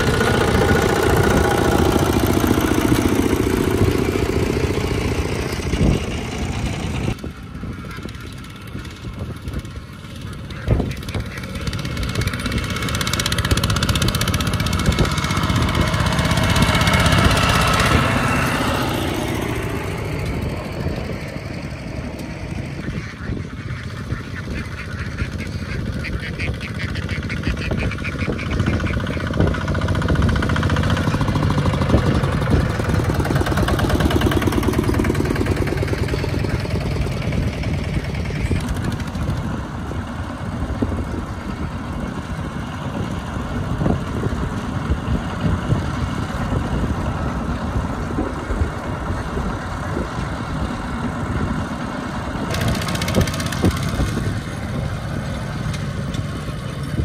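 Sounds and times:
diesel engine chugging: 0:00.0 - 0:57.0
ducks quacking: 0:09.6 - 0:11.7, 0:22.5 - 0:29.6.

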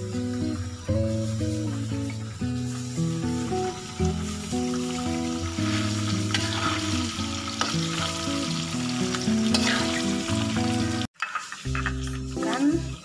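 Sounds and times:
peanuts sizzling in hot oil: 0:00.0 - 0:13.0
spatula scraping a pan: 0:05.5 - 0:08.2, 0:09.4 - 0:10.2, 0:11.2 - 0:12.3.

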